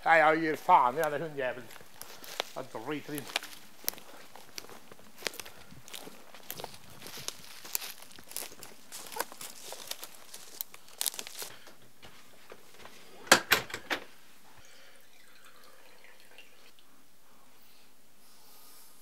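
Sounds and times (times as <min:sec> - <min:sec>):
footsteps on twigs and leaves: 0:00.2 - 0:13.0.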